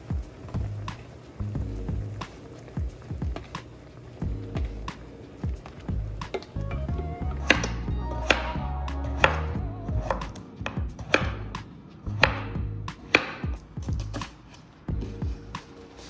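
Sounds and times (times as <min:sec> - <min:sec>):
knife chopping on cutting board: 0:07.4 - 0:08.5, 0:09.2 - 0:11.5, 0:12.2 - 0:12.5, 0:13.1 - 0:14.4.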